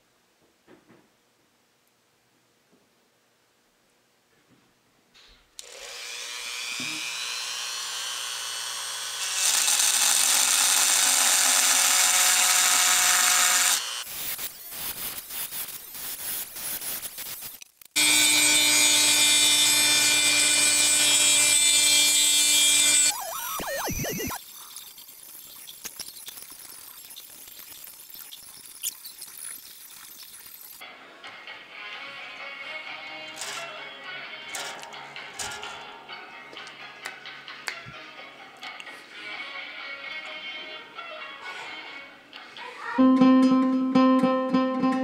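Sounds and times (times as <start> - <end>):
rotary tool cutting wood: 5.6 - 30.8.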